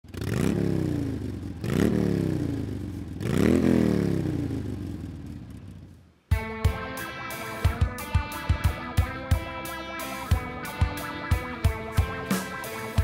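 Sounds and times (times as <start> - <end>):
motorcycle engine revving: 0.0 - 6.1
guitar music: 6.3 - 13.0.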